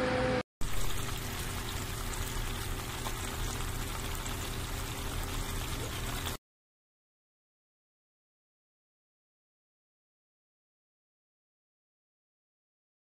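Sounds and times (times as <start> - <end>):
hot oil sizzling: 0.6 - 6.4.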